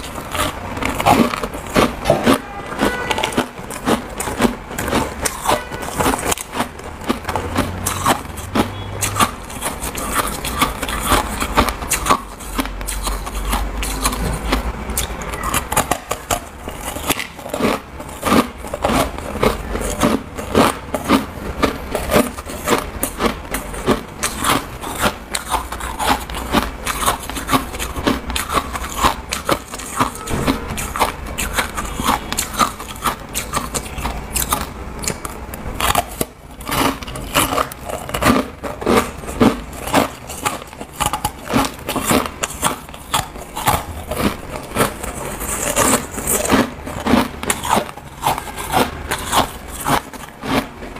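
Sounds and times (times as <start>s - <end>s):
chewing ice crunches: 0.0s - 50.9s.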